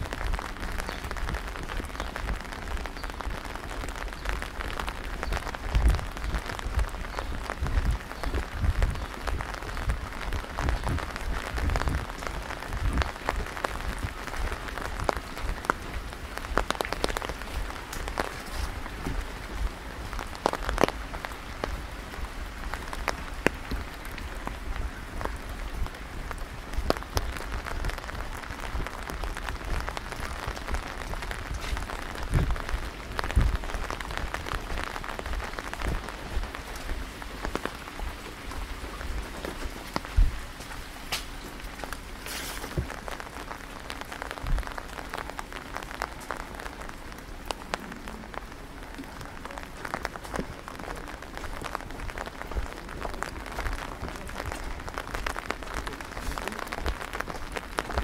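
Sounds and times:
steady rain falling: 0.0s - 58.0s
low thuds: 40.0s - 40.4s.

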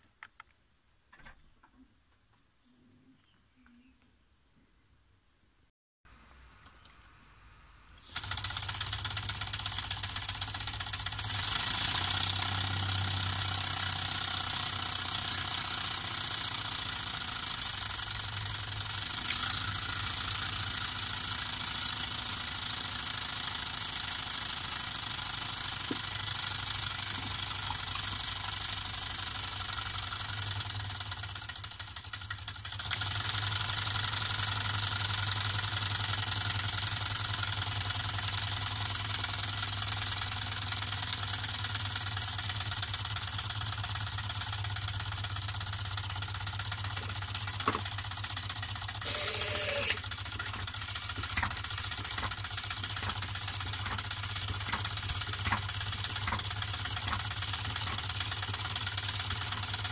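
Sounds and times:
air hissing through valves: 7.9s - 8.6s
rapid mechanical chatter: 8.1s - 59.9s.

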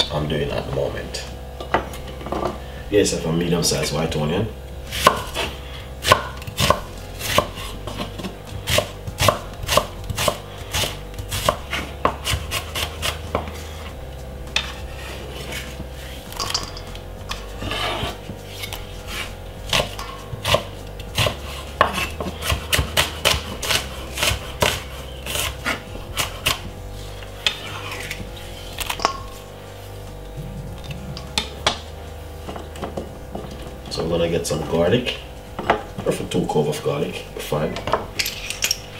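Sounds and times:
knife chopping on wooden board: 4.9s - 13.6s, 17.3s - 26.8s.

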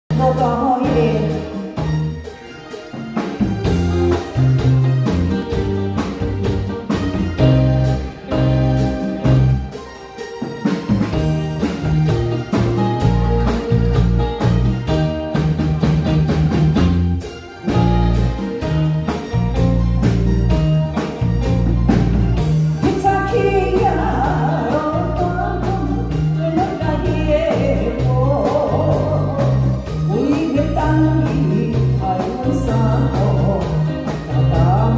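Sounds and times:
woman singing: 0.1s - 1.7s, 22.8s - 34.9s
live band playing slow song: 0.1s - 34.9s.

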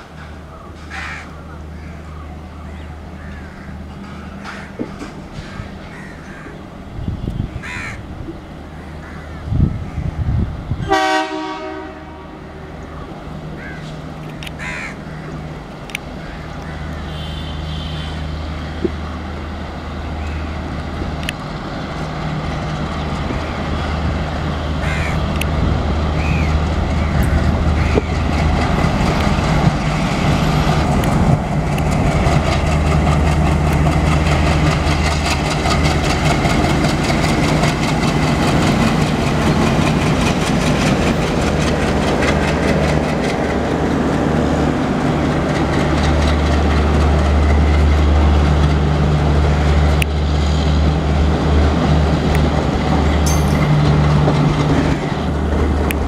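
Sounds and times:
diesel locomotive engine drone: 0.0s - 56.0s
crows cawing: 0.2s - 2.0s, 3.2s - 3.8s, 4.4s - 6.6s, 7.6s - 8.1s, 8.7s - 10.1s, 13.6s - 13.9s, 14.6s - 15.4s, 16.2s - 17.2s, 24.8s - 25.2s, 26.2s - 28.2s
train wheels clattering over rails: 3.8s - 6.3s, 20.6s - 56.0s.

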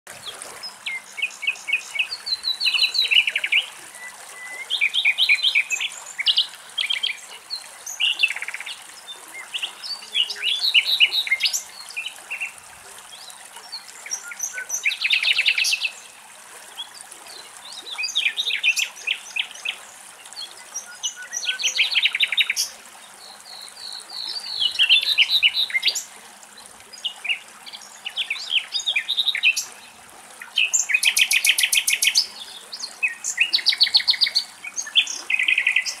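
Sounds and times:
nightingale singing: 30.5s - 36.0s.

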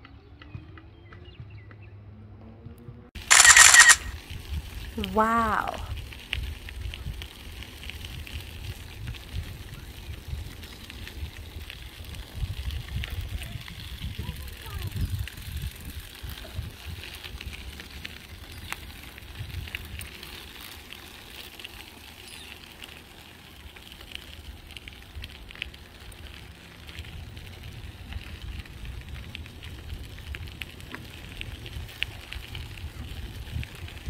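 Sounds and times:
bicycle tyres on gravel: 4.1s - 34.0s
wind buffeting microphone: 5.7s - 20.4s, 24.4s - 34.0s.

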